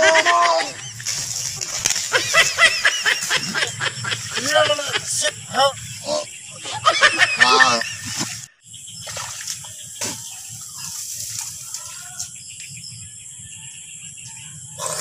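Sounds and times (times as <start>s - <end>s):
water splashing and sloshing: 0.8s - 6.0s, 7.8s - 12.2s.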